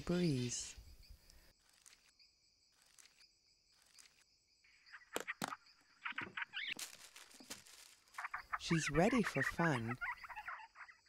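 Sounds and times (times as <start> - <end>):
night insects chirring: 0.0 - 11.0
high wavering chirping calls: 4.7 - 6.8, 8.1 - 11.0.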